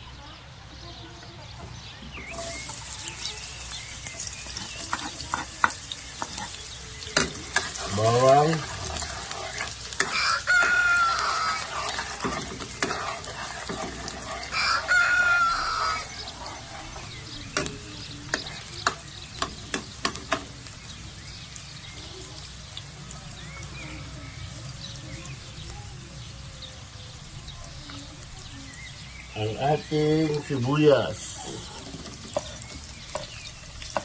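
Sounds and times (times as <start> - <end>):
garlic sizzling in oil: 1.7 - 34.0
spatula knocking pan: 4.4 - 20.6
rooster crowing: 10.0 - 11.9, 14.4 - 16.2.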